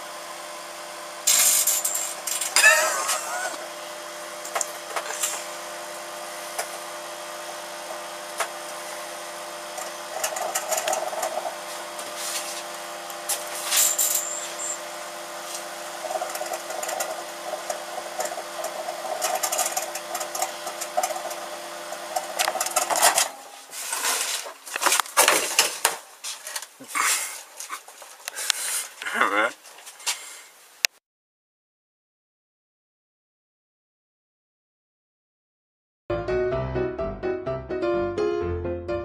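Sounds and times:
microwave oven humming: 0.0 - 23.9
light bulb arcing and crackling: 15.5 - 23.3.

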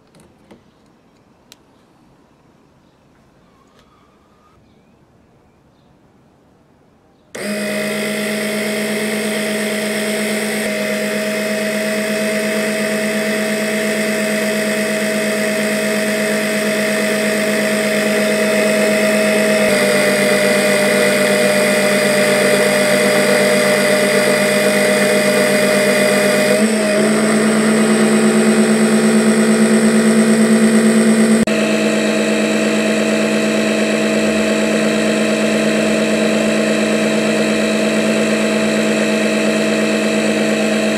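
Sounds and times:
electric pump motor humming: 7.3 - 40.9.

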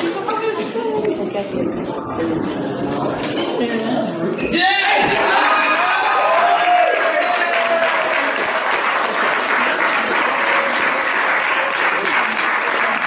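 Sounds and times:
small crowd applauding: 4.8 - 13.0.

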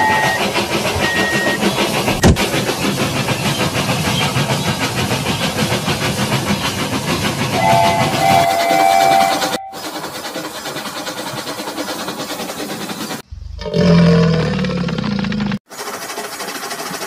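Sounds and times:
toy train whistle: 0.0 - 0.4, 7.6 - 9.8
chugging hissing toy train: 0.0 - 13.3, 15.6 - 17.0.

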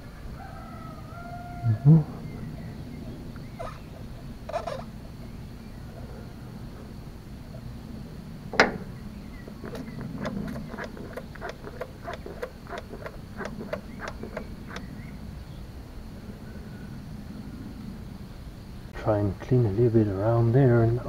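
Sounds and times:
hand fuel pump clicking: 9.5 - 14.9
sharp click: 9.7 - 14.9.

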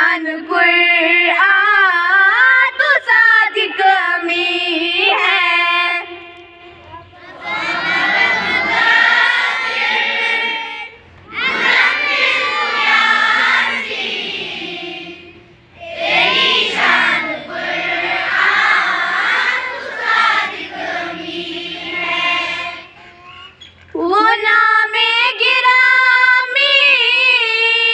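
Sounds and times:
children singing in unison: 7.2 - 23.2.

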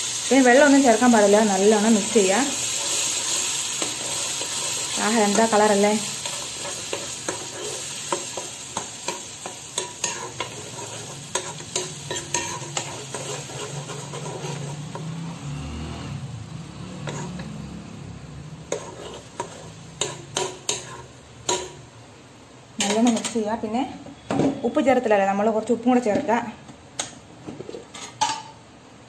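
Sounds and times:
paste sizzling in hot oil: 0.0 - 15.8, 16.4 - 22.0
spoon scraping and clicking on pan: 6.2 - 15.1, 17.0 - 17.5, 18.7 - 21.8, 27.0 - 28.6.

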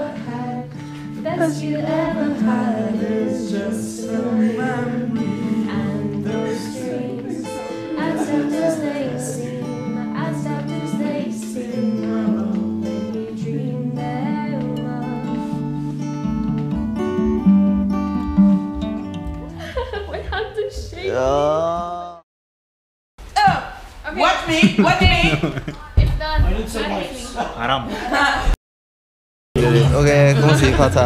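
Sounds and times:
woman singing: 0.0 - 15.8
acoustic guitar chords: 0.0 - 20.0, 29.6 - 31.0.

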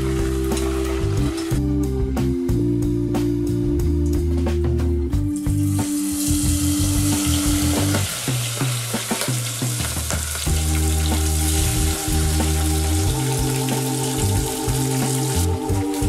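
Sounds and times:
food sizzling in hot oil: 0.0 - 1.6, 5.6 - 16.0
background music: 0.0 - 16.0.

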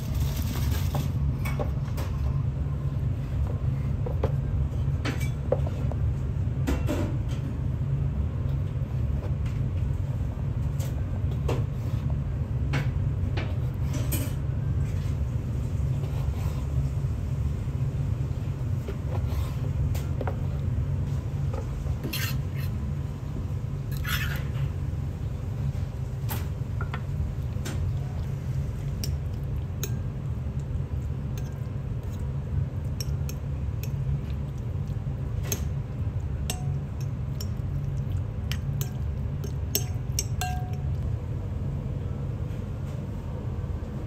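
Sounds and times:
steady low hum: 0.0 - 44.0
metal spoon scraping ceramic bowl: 22.0 - 22.8, 23.9 - 24.6.

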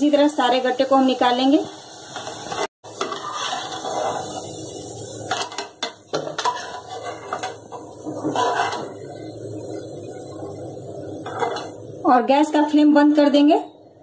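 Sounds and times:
steel spoon scraping metal pan: 2.2 - 4.4, 6.4 - 8.9.

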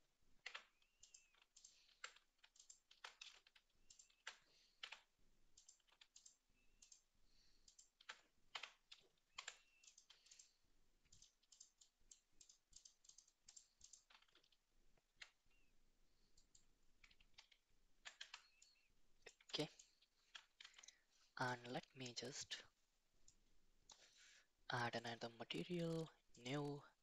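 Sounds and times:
computer keyboard and mouse clicking: 0.4 - 15.5, 16.2 - 21.0.

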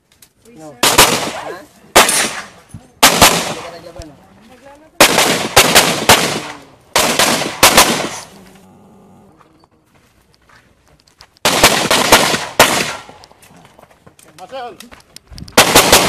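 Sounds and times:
handgun shots: 0.8 - 3.8, 5.0 - 8.3, 11.4 - 13.2, 15.6 - 16.0.

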